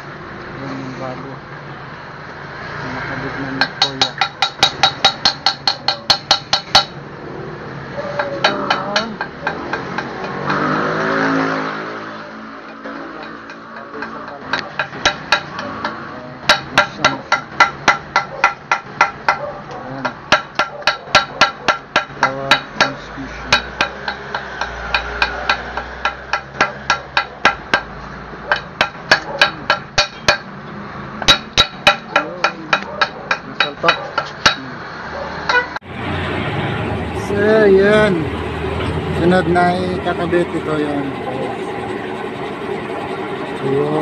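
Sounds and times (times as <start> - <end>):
hammer striking metal: 3.4 - 7.0, 8.1 - 30.6, 31.2 - 34.7.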